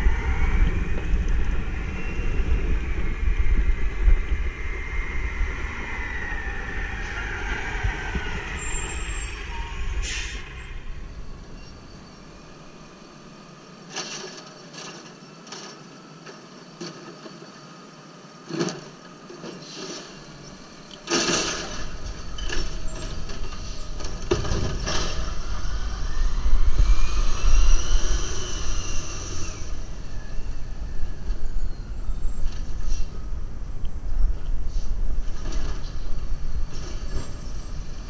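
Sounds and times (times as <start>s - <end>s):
truck whine: 0.0s - 38.0s
cart and lift arm clanking: 18.5s - 25.5s.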